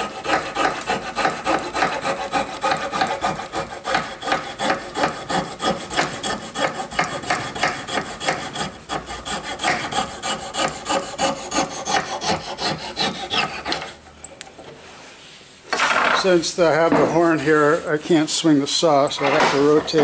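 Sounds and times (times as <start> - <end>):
hand saw cutting wood: 0.0 - 14.0, 19.1 - 20.0.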